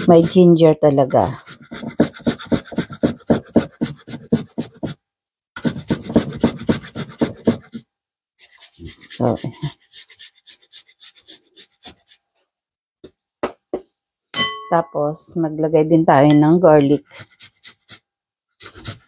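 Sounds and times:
ginger scraping on metal grater: 0:00.0 - 0:00.5, 0:01.1 - 0:05.0, 0:05.6 - 0:07.8, 0:08.4 - 0:12.2, 0:16.9 - 0:18.0, 0:18.6 - 0:19.0.

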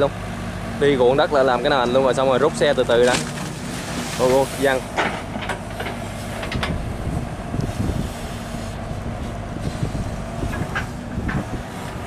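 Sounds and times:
excavator diesel engine drone: 0:00.0 - 0:12.0
machine rumbles and knocks: 0:02.9 - 0:07.3, 0:09.2 - 0:12.0
wind buffeting microphone: 0:04.8 - 0:12.0.

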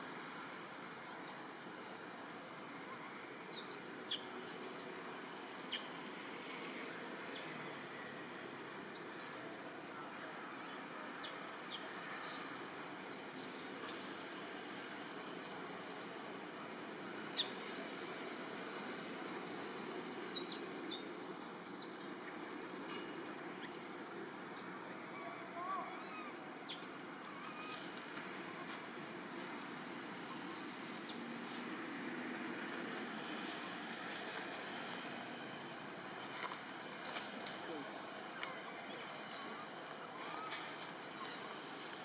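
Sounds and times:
high-pitched chirps and squealing calls: 0:17.2 - 0:26.8.

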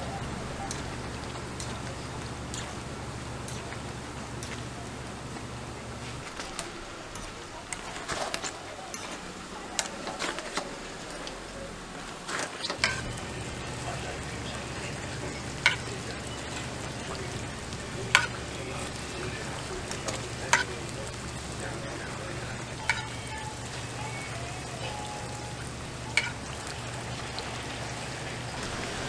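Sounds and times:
metal tongs clinking: 0:00.0 - 0:02.8, 0:03.4 - 0:03.8, 0:06.2 - 0:11.4, 0:12.4 - 0:27.1
low steady hum: 0:00.0 - 0:29.0
pancakes sizzling in oil: 0:00.0 - 0:29.0.

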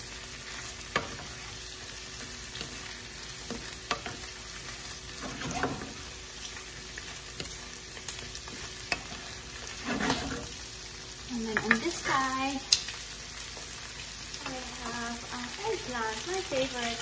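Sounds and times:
shrimp sizzling in a skillet: 0:00.0 - 0:17.0
wooden spatula scraping a pan: 0:02.2 - 0:06.1, 0:07.0 - 0:10.6.

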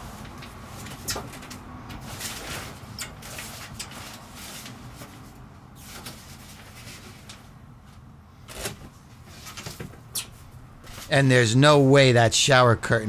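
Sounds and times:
shower curtain rustling swishes: 0:02.0 - 0:07.4.

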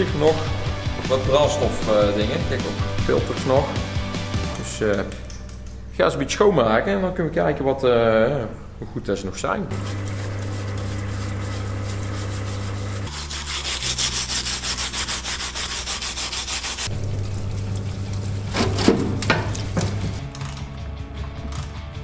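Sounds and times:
electric pump hum: 0:00.0 - 0:20.7
hand scrubbing metal part: 0:09.7 - 0:16.9, 0:18.5 - 0:20.2.

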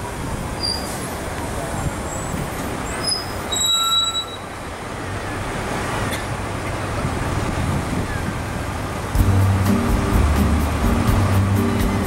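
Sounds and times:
city road traffic: 0:00.0 - 0:12.0
high squeal: 0:00.6 - 0:01.2, 0:02.1 - 0:04.6.

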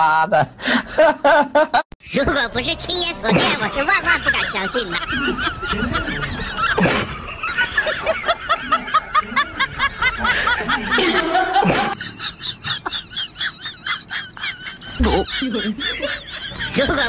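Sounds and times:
background music: 0:02.0 - 0:11.6
bursts of laughter: 0:03.3 - 0:17.0.

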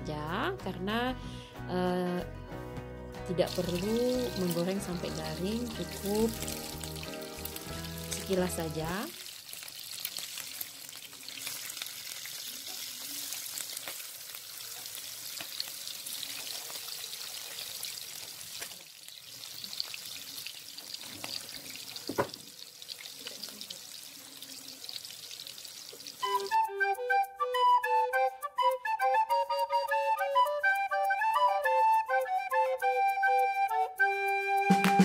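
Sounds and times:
beef sizzling in frying pan: 0:03.4 - 0:26.6.

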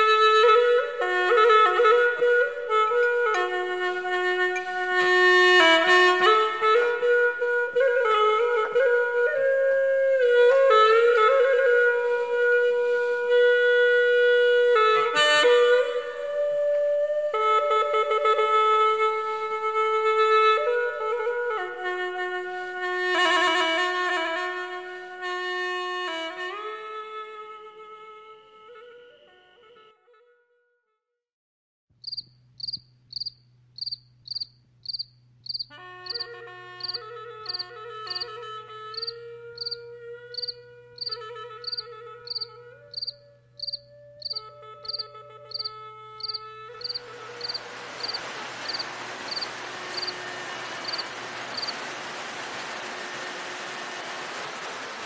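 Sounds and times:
slow solo woodwind melody: 0:00.0 - 0:30.3, 0:35.7 - 0:52.0
cricket chirping: 0:32.0 - 0:36.2, 0:36.8 - 0:37.6, 0:39.0 - 0:39.8, 0:40.4 - 0:50.1, 0:50.8 - 0:51.0.

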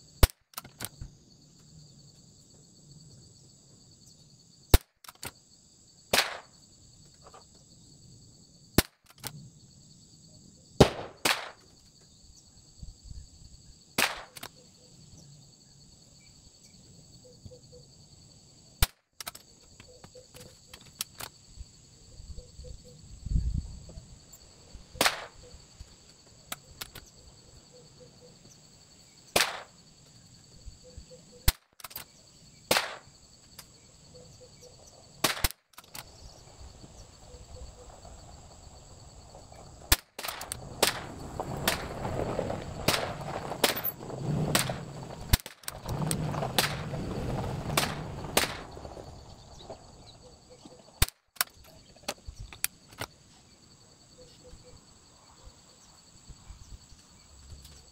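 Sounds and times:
insects buzzing: 0:00.0 - 0:57.9
rifle shots cracking: 0:10.8 - 0:11.6, 0:29.4 - 0:29.8, 0:32.7 - 0:33.1, 0:39.9 - 0:41.9, 0:42.9 - 0:45.7, 0:46.6 - 0:46.8, 0:47.8 - 0:48.7.

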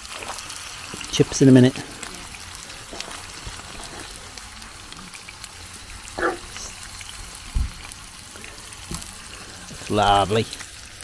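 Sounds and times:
food sizzling in a frying pan: 0:00.0 - 0:11.0
low thump: 0:07.5 - 0:07.8.

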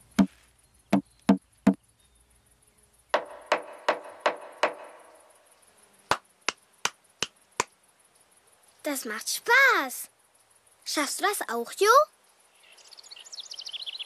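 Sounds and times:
knocking on wood: 0:03.2 - 0:05.0.

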